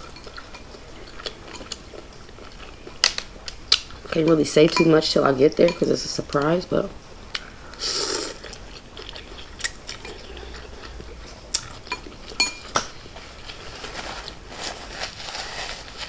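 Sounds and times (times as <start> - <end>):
quiet eating sounds: 0.0 - 14.5
person slurping noodles: 7.8 - 8.6.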